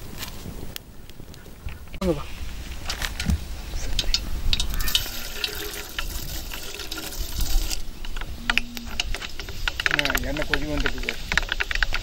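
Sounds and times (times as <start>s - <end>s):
oil sizzling with crackles: 0.0s - 12.0s.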